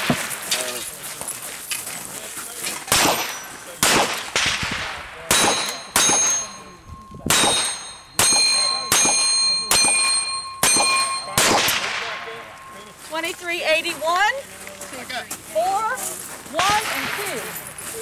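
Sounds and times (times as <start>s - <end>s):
steel target clanging: 2.9s - 4.6s, 5.3s - 12.9s.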